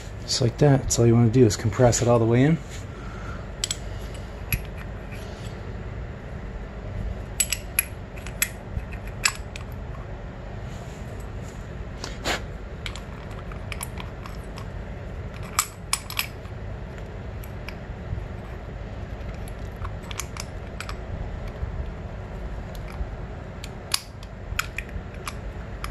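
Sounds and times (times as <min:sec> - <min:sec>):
low background hum: 0:00.0 - 0:25.9
small metallic clicks: 0:07.4 - 0:09.8, 0:19.2 - 0:21.6, 0:23.6 - 0:25.9.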